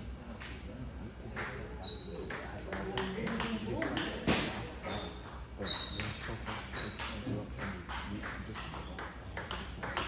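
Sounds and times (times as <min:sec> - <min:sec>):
table tennis balls clicking: 0:01.4 - 0:04.5, 0:05.2 - 0:10.0
short high squeaks: 0:01.8 - 0:02.2, 0:04.8 - 0:07.2.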